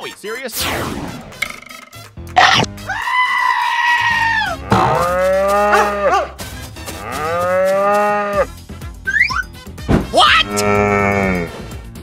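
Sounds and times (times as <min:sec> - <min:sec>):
cow mooing: 0:04.1 - 0:06.3, 0:06.9 - 0:08.5, 0:10.4 - 0:11.6.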